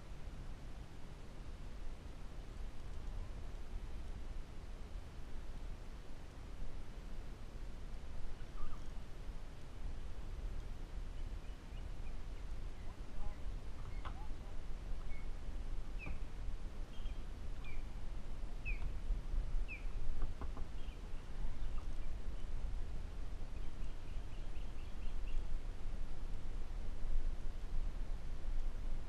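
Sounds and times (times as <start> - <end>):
bird chirping: 8.4 - 9.0, 11.1 - 17.9, 18.6 - 19.0, 19.6 - 20.0, 20.6 - 22.6, 23.5 - 25.5.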